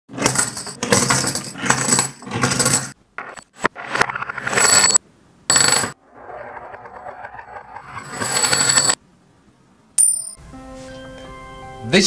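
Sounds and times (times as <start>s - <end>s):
coins clinking and rattling: 0.2s - 3.0s, 4.4s - 6.0s, 8.0s - 9.0s.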